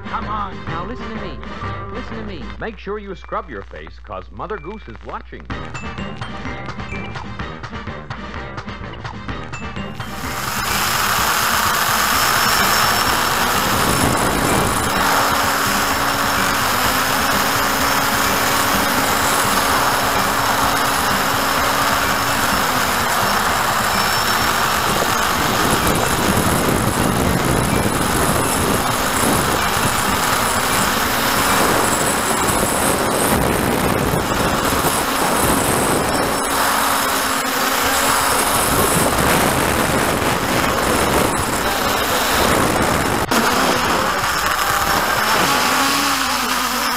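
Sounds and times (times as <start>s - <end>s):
drone propellers whirring: 9.9s - 46.9s.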